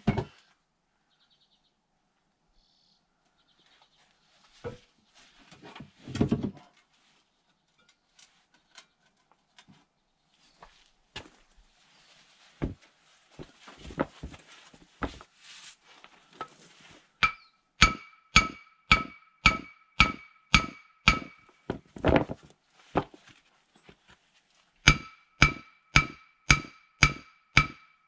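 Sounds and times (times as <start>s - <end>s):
hammer striking metal: 17.2s - 21.6s, 24.9s - 28.0s.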